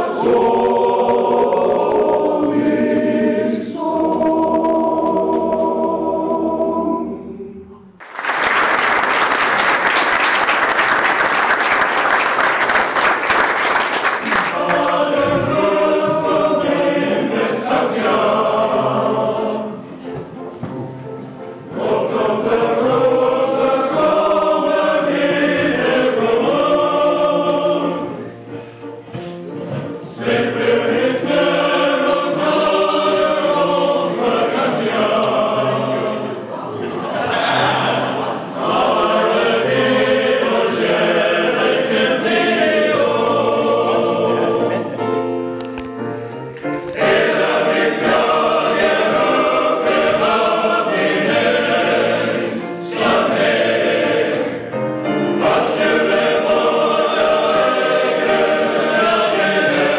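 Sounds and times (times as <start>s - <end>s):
men's chorus singing: 0.0s - 7.7s, 14.3s - 19.8s, 21.6s - 28.3s, 29.9s - 45.1s, 46.9s - 59.9s
applause: 8.0s - 14.9s.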